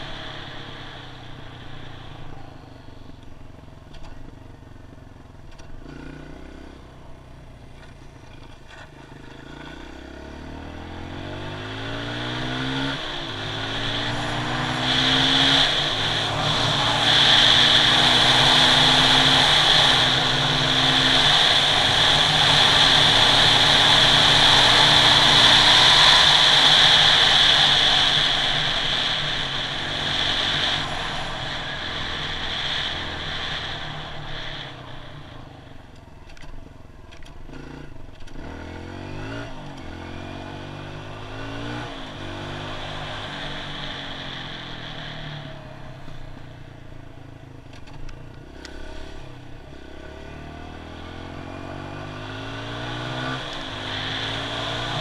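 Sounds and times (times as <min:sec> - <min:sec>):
motorcycle engine accelerating: 0:00.0 - 0:55.0
wind rush on camera: 0:12.4 - 0:35.8, 0:52.4 - 0:55.0.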